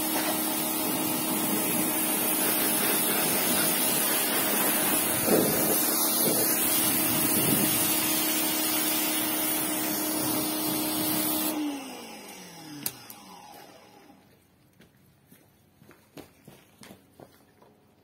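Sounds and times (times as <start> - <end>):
water jet spraying: 0.0 - 11.7
pressure washer motor humming: 0.0 - 14.3.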